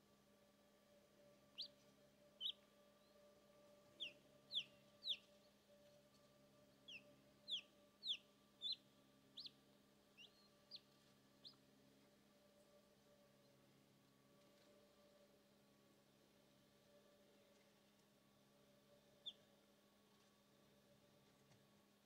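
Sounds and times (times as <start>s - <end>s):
faint steady hum: 0.0s - 22.0s
chick peeping inside egg: 1.5s - 1.8s, 2.4s - 2.7s, 4.0s - 5.4s, 6.8s - 11.6s, 19.2s - 19.5s.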